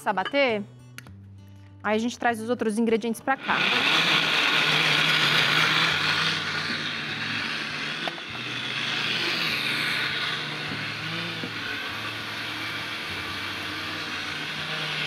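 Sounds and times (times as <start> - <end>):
blender running: 3.3 - 15.0.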